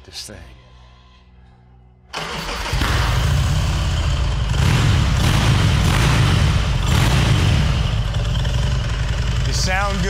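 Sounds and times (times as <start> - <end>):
v-twin engine running loud: 3.2 - 10.0.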